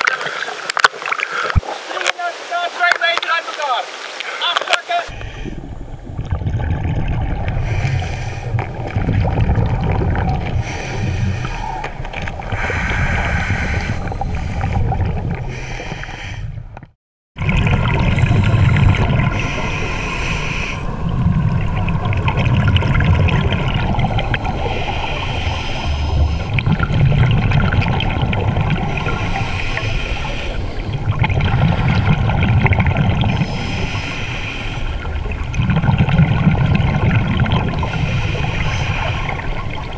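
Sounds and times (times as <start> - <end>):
gurgling exhaust bubbles underwater: 5.1 - 39.9.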